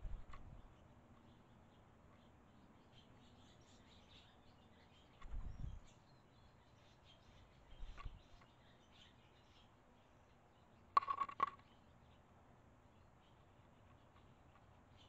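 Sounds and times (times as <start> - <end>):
swallows chirping: 0.0 - 10.9.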